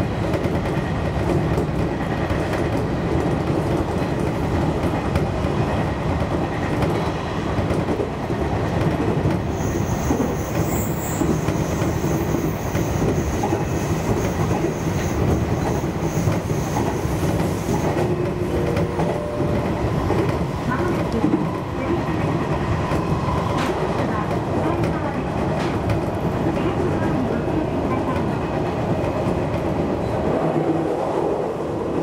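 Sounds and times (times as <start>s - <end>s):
train wheels rumbling on rails: 0.0s - 32.0s
faint high wheel squeal: 9.5s - 17.7s.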